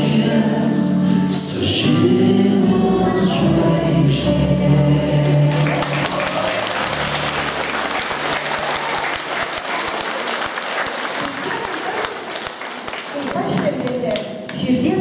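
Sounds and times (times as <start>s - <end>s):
audience applauding: 5.4s - 14.3s.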